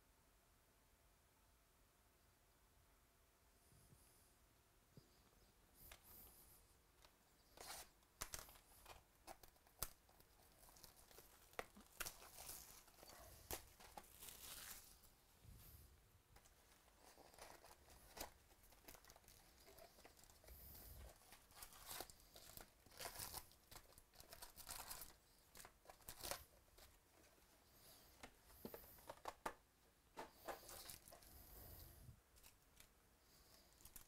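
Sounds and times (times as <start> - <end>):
foil packs handled: 7.6 - 15.1, 16.4 - 27.0, 30.3 - 31.3
cardboard box crinkling and tearing: 10.2 - 15.0, 21.1 - 26.4.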